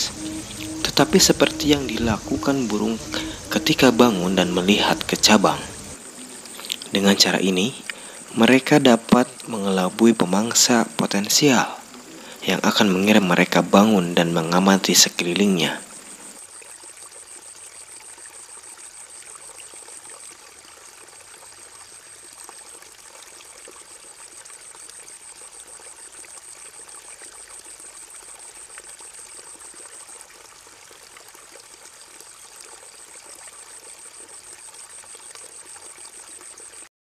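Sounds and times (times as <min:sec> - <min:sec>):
thin high-pitched tone: 0:00.0 - 0:05.8
steady watery hiss: 0:00.0 - 0:36.9.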